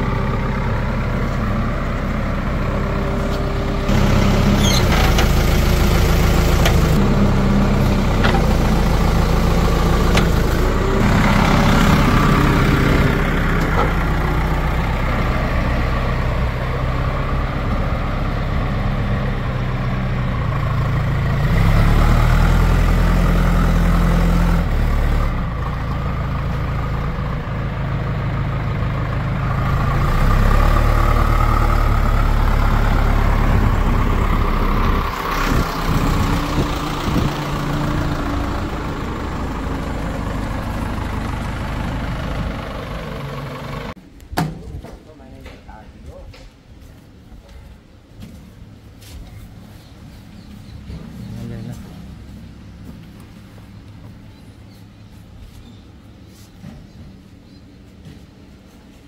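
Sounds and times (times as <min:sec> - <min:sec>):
diesel machinery engine running: 0:00.0 - 0:44.0, 0:48.1 - 0:59.0.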